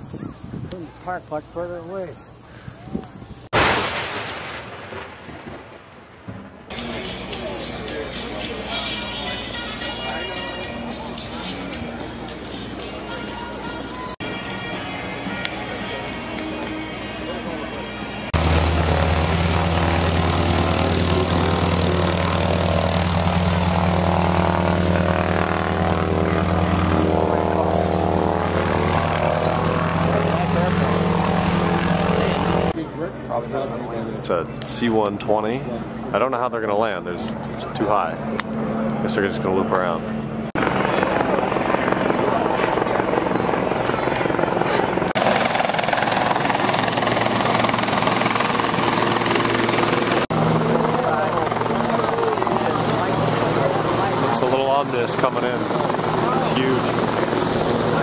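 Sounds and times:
helicopter rotor chopping: 0:03.5 - 0:14.1, 0:18.0 - 0:58.0
propeller plane engine running: 0:15.1 - 0:33.2, 0:37.3 - 0:58.0.

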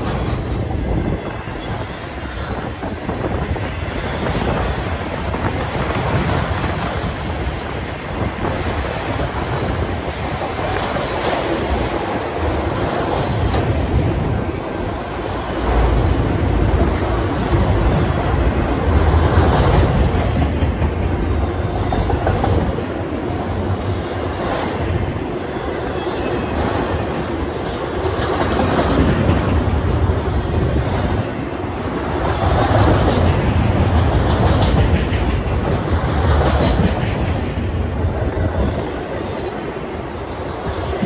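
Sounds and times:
wheels clickety-clack: 0:00.0 - 0:01.8, 0:18.8 - 0:21.2, 0:21.9 - 0:22.9, 0:27.6 - 0:31.2, 0:32.2 - 0:38.9
train wheels rumbling on rail: 0:00.0 - 0:41.0.

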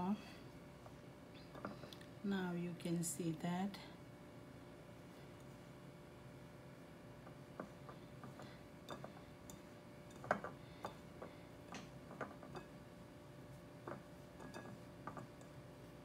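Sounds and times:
hands mixing flour in glass bowl: 0:04.6 - 0:16.0.

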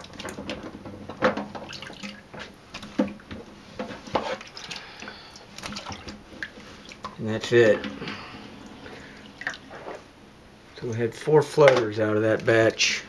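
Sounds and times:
water sloshing in a steel sink: 0:00.0 - 0:10.1.

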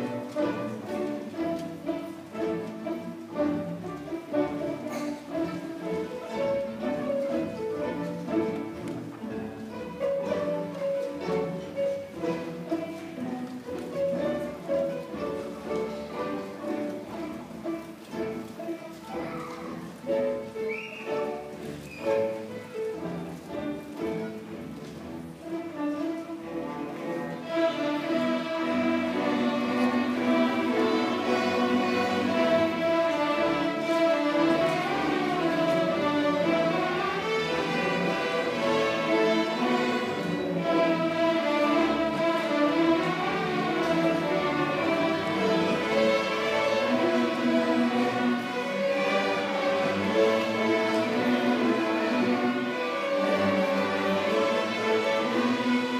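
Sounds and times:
string orchestra playing: 0:00.0 - 0:55.9.

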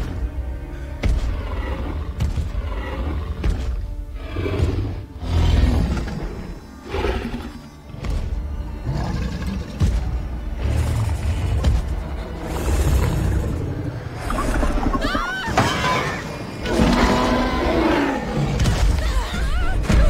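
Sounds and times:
dramatic background music: 0:00.0 - 0:20.0
dinosaur growls and roar: 0:01.0 - 0:07.7, 0:08.8 - 0:15.1, 0:15.8 - 0:18.7.

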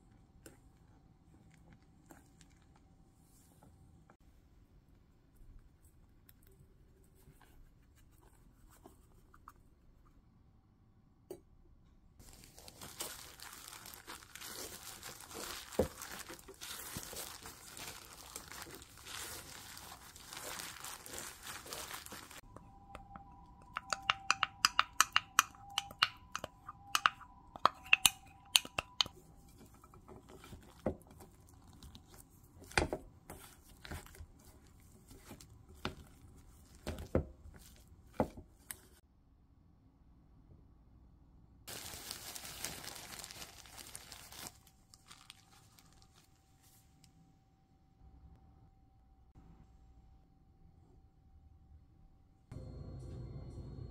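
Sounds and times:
dough rustling and scraping: 0:12.2 - 0:22.4, 0:27.8 - 0:39.0
sharp clicks and taps: 0:22.9 - 0:29.2
wooden spoon knocking bowl: 0:23.1 - 0:29.1
faint steady hum: 0:44.6 - 0:53.9.

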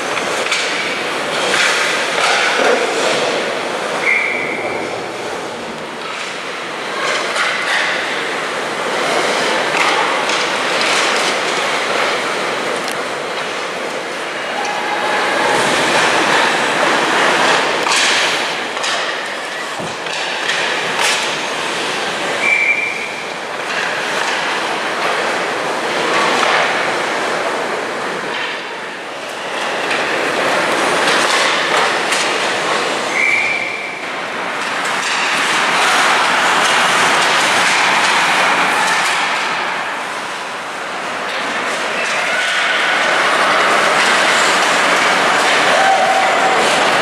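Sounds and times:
hockey sticks and puck clacking: 0:00.0 - 0:04.8, 0:05.9 - 0:14.8, 0:15.6 - 0:27.0, 0:28.2 - 0:47.0
skate blades scraping ice: 0:00.1 - 0:04.5, 0:08.8 - 0:27.0, 0:41.5 - 0:47.0.

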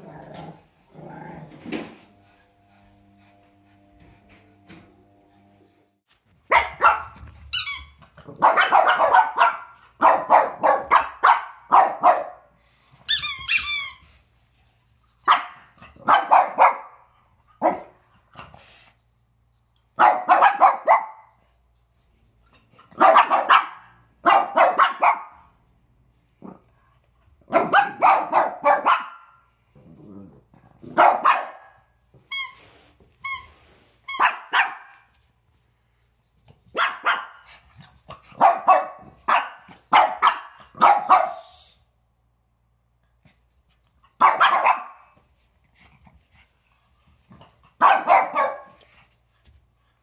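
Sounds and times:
squeaky toy squeaking: 0:07.4 - 0:08.0, 0:13.1 - 0:14.1, 0:32.3 - 0:32.6, 0:33.2 - 0:34.5
dogs barking: 0:08.3 - 0:12.4, 0:15.3 - 0:17.0, 0:20.0 - 0:21.3, 0:23.0 - 0:25.3, 0:27.5 - 0:29.4, 0:30.9 - 0:31.8, 0:34.2 - 0:35.0, 0:36.7 - 0:37.6, 0:38.3 - 0:41.4, 0:44.2 - 0:45.0, 0:47.8 - 0:48.8.

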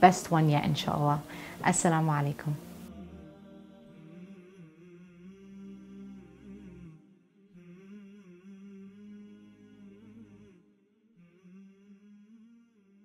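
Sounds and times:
wordless humming music: 0:00.0 - 0:07.0.

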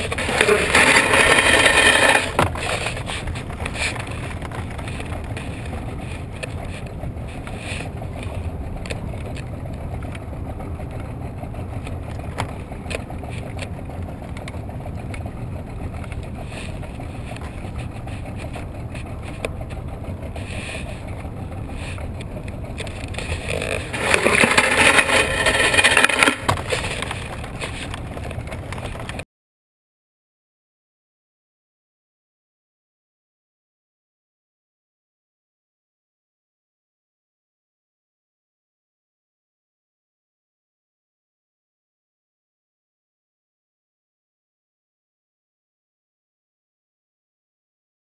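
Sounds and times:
boat motor running: 0:00.0 - 0:29.2.

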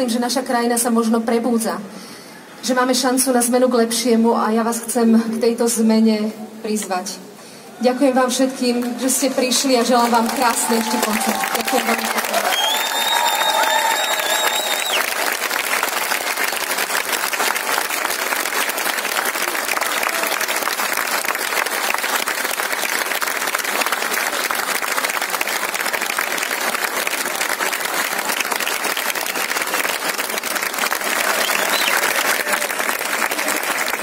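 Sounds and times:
large crowd applauding: 0:08.7 - 0:34.0.

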